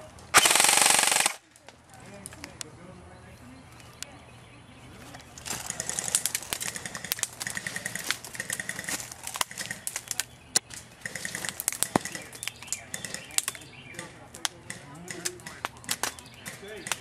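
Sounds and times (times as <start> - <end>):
airsoft guns firing bursts: 0.3 - 1.4, 5.6 - 10.0, 11.0 - 17.0.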